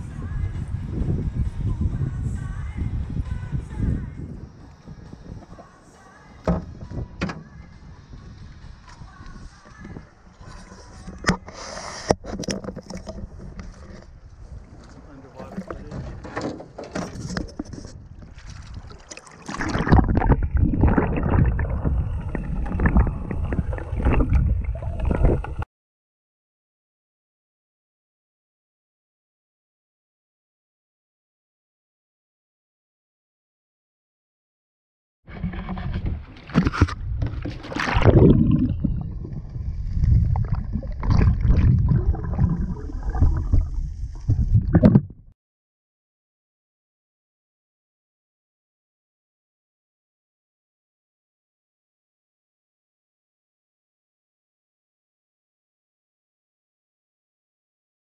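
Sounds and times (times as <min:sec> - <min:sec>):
muffled underwater rumble: 0:00.0 - 0:16.2, 0:17.2 - 0:25.6, 0:35.3 - 0:45.3
river water sloshing and gurgling: 0:09.4 - 0:25.6, 0:35.3 - 0:45.0
water splashes: 0:16.9 - 0:25.6, 0:35.3 - 0:45.3
river water splashing: 0:18.3 - 0:23.0, 0:37.4 - 0:38.7.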